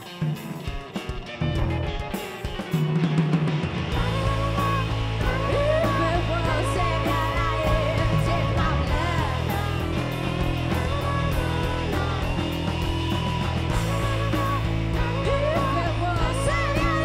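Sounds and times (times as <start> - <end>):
drums: 0.0 - 17.0
electric guitar: 0.0 - 17.0
bass line: 2.9 - 17.0
person singing: 3.9 - 17.0.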